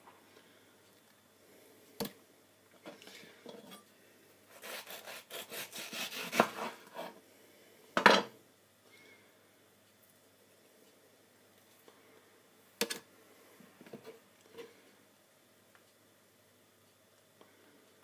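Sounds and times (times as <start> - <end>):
knife slicing on cutting board: 4.6 - 6.8.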